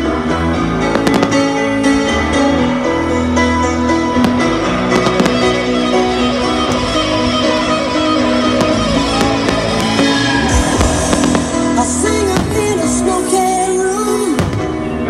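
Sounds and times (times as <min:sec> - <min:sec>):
music playing: 0:00.0 - 0:15.0
firework shells bursting: 0:08.6 - 0:12.8.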